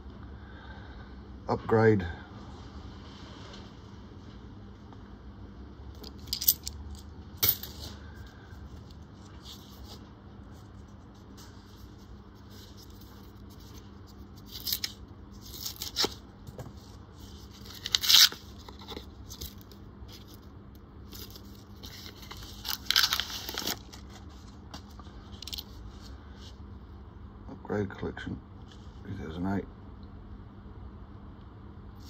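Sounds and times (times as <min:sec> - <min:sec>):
paper wrapper tearing: 0:14.4 - 0:16.2, 0:17.6 - 0:19.7, 0:21.2 - 0:24.2.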